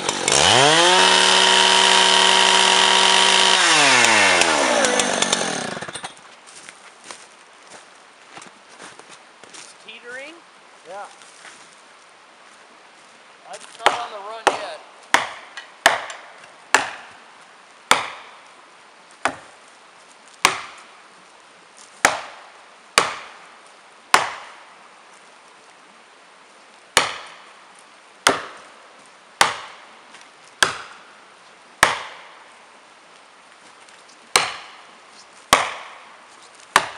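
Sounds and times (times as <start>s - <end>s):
axe striking wedges: 13.8s - 17.1s, 17.9s - 18.3s, 19.2s - 19.5s, 20.4s - 20.8s, 22.0s - 22.4s, 23.0s - 23.4s, 24.1s - 24.6s, 27.0s - 27.4s, 28.2s - 28.6s, 29.4s - 29.8s, 30.6s - 30.9s, 31.8s - 32.3s, 34.3s - 34.8s, 35.5s - 36.0s.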